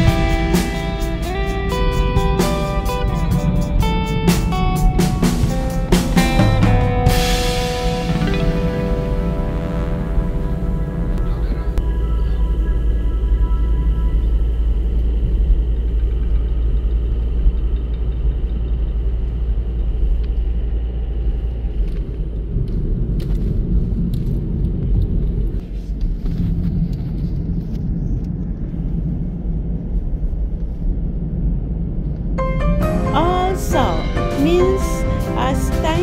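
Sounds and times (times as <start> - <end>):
car cabin road rumble: 8.0 - 32.5.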